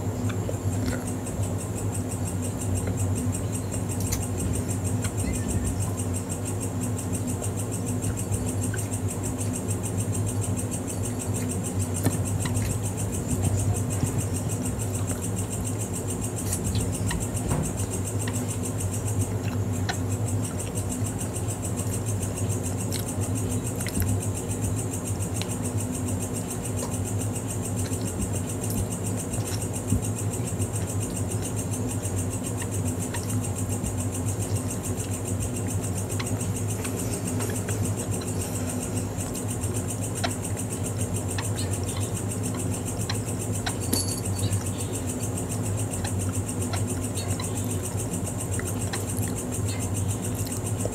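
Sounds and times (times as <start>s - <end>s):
low hum with high whine: 0.0s - 50.9s
chewing clicks: 0.2s - 1.2s, 3.9s - 5.4s, 16.4s - 24.7s, 45.6s - 50.9s.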